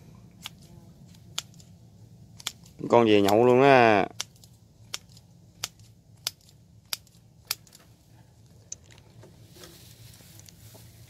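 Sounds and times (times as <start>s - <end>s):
sharp clicks: 0.4s - 1.7s, 2.3s - 7.8s
footsteps through tall grass: 9.4s - 11.0s.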